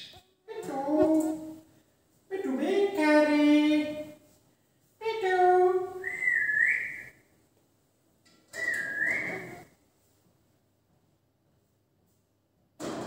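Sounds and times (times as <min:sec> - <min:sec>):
parakeet whistling: 0:08.6 - 0:09.6.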